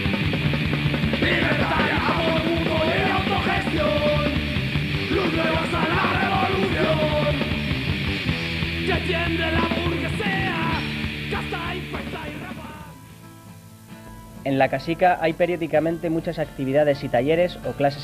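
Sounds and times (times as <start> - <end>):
punk rock song: 0.0 - 16.6
shouted vocals: 1.2 - 4.5, 5.1 - 7.6.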